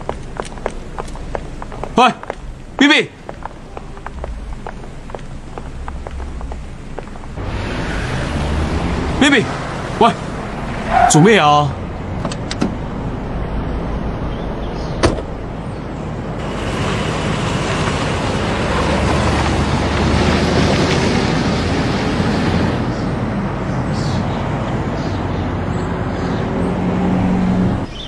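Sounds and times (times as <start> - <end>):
car driving off: 0.0 - 23.3
car door shutting: 15.0 - 15.4.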